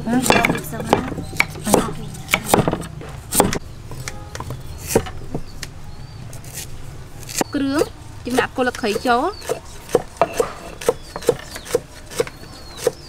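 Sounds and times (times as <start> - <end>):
cleaver chopping on wooden board: 0.2 - 3.6, 8.3 - 13.0.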